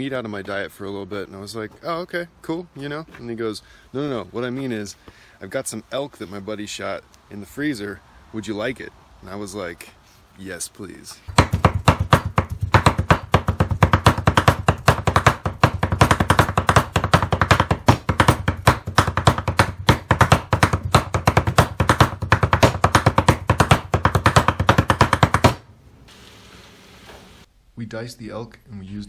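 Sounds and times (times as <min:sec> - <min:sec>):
cleaver chopping meat on wooden board: 0:11.3 - 0:25.6.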